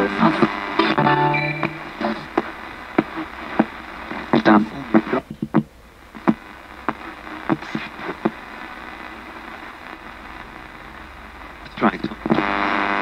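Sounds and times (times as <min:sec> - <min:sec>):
radio static hiss: 0:00.0 - 0:13.0
chopped radio broadcast blips: 0:00.2 - 0:05.6.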